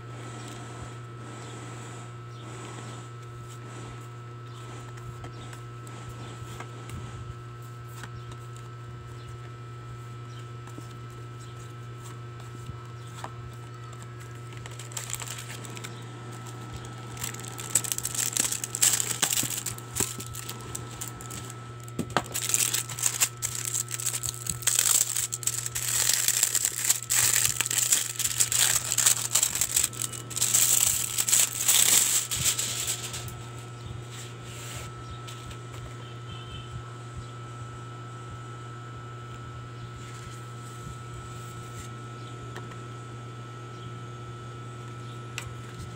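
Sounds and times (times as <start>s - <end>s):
low hum: 13.1s - 35.4s
plastic wrapping crinkling: 13.5s - 33.5s.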